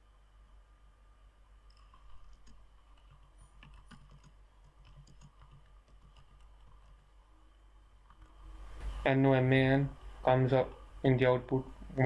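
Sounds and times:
keyboard typing: 0:01.7 - 0:07.2.

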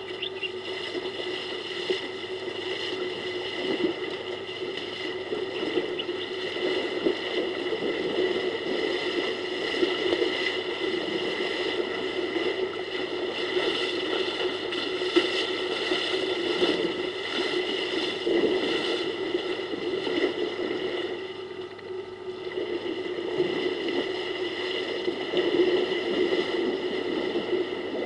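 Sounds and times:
steady background hum: 0:00.0 - 0:28.0
water splashing and sloshing: 0:00.0 - 0:28.0.

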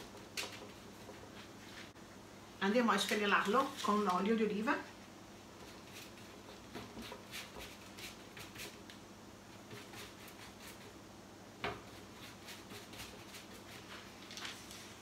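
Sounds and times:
pastry brush strokes on dough: 0:05.6 - 0:08.8, 0:11.8 - 0:15.0.

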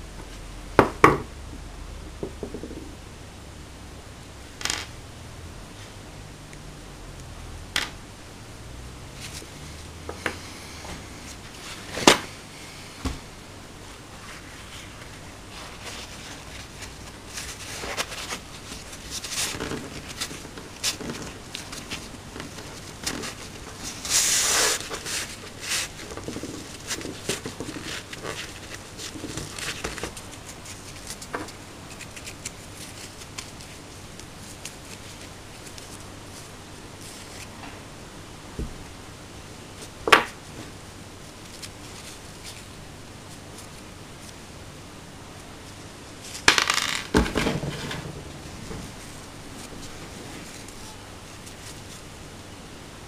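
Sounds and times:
cloth rubbing and rustling: 0:08.8 - 0:37.6, 0:39.7 - 0:44.6, 0:47.2 - 0:52.5.

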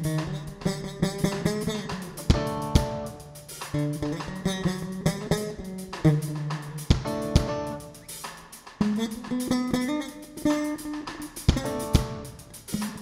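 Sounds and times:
electric bass: 0:00.0 - 0:09.5, 0:10.2 - 0:13.0
picked electric guitar: 0:00.0 - 0:13.0
sharp drum hits: 0:00.0 - 0:13.0.

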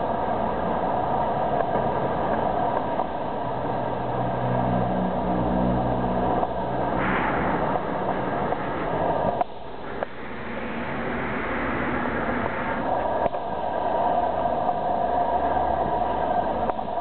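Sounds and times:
rumble of passing cars: 0:00.0 - 0:17.0
vehicle engine hum: 0:00.0 - 0:17.0
short hiss: 0:07.0 - 0:13.0.

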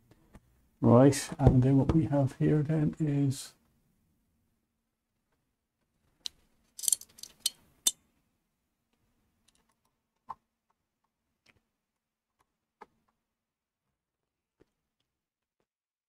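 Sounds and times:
small parts clicking: 0:06.2 - 0:08.0.

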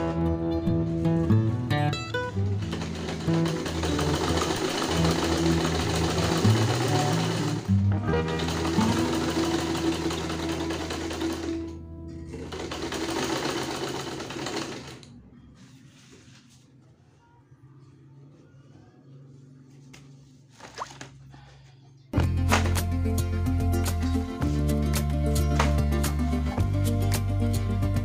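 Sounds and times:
background music: 0:00.0 - 0:14.9, 0:22.2 - 0:28.0
sewing machine rattling: 0:02.4 - 0:11.7, 0:12.3 - 0:15.1.

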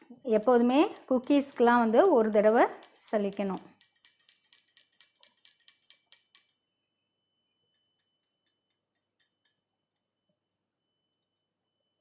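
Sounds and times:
metal sieve rattling over bowl: 0:00.2 - 0:06.6.

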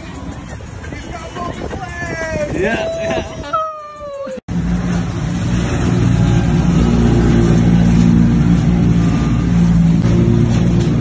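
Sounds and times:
choppy water: 0:00.0 - 0:11.0
motorboat engine running: 0:04.5 - 0:11.0.

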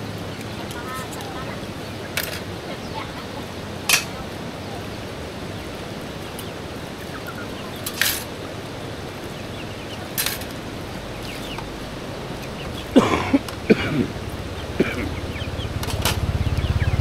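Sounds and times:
steady background hiss: 0:00.0 - 0:17.0
crockery clacking together: 0:03.9 - 0:04.2, 0:07.8 - 0:08.3, 0:10.1 - 0:10.6.

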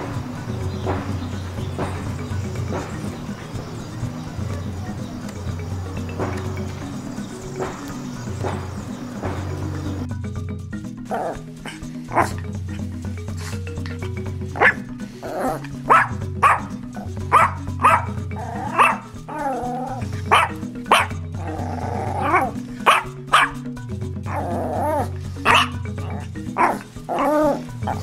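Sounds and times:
background music: 0:00.0 - 0:28.0
dog barking: 0:11.1 - 0:12.4, 0:14.6 - 0:23.6, 0:24.3 - 0:28.0
dog howling calls: 0:14.6 - 0:23.6, 0:24.3 - 0:28.0.

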